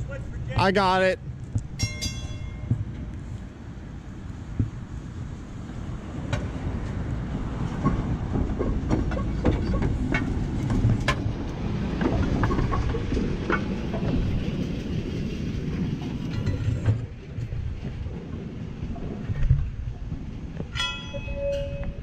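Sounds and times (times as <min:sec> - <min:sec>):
streetcar rumbling on track: 0:00.0 - 0:22.0
wheel clicks on rails: 0:04.1 - 0:14.7.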